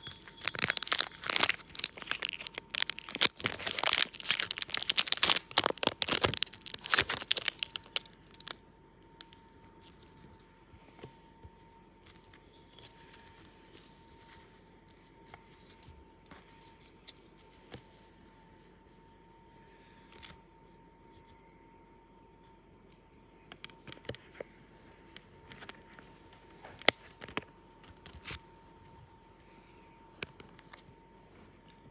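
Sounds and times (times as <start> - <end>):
card pack wrapper tearing: 0.0 - 8.6
faint steady hum: 0.0 - 31.9.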